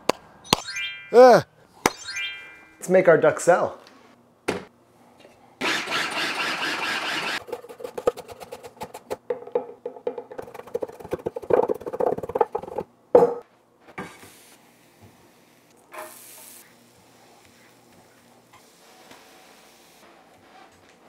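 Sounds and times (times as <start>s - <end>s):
appliance whir: 5.6s - 8.2s.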